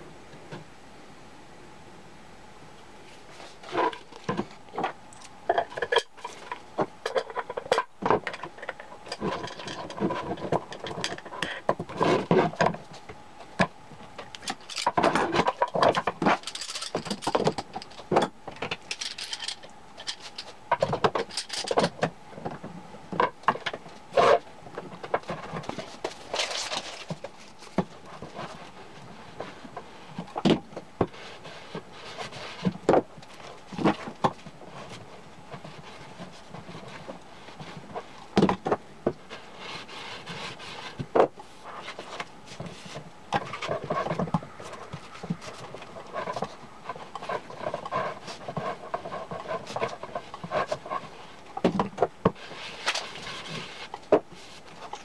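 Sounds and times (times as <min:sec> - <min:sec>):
knocks and clicks handling disc: 0:37.8 - 0:39.3.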